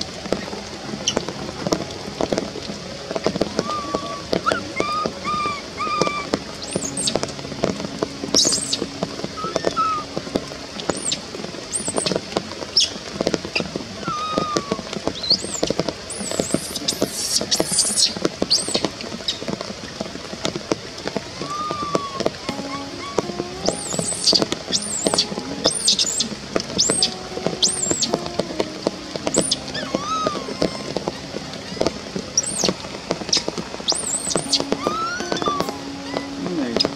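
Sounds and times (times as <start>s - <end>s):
faint ticks and rustles: 0.0s - 36.9s
baby monkey crying: 21.4s - 26.2s.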